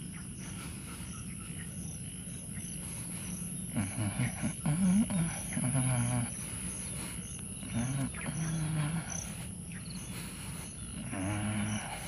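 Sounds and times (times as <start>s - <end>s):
insects chorus: 0.0s - 12.0s
low voice murmuring: 3.6s - 9.5s, 10.1s - 12.0s.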